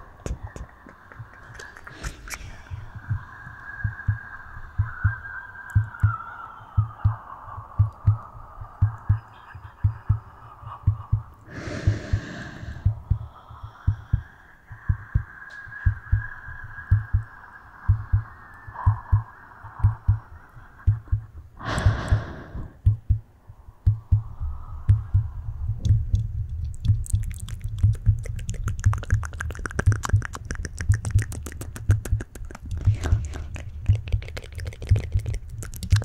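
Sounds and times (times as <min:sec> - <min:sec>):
soft low thumps: 0:06.8 - 0:09.2, 0:14.9 - 0:16.3, 0:16.9 - 0:22.2, 0:22.8 - 0:28.2
breathy whoosh: 0:11.5 - 0:20.8
rapid fine clicks and crackles: 0:26.2 - 0:36.0.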